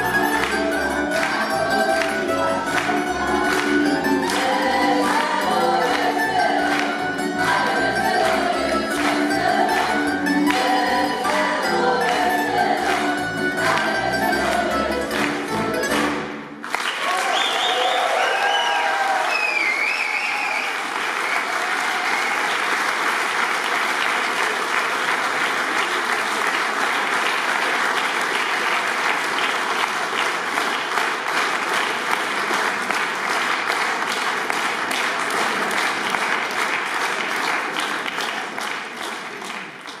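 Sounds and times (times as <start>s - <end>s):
audience applauding: 0.0s - 40.0s.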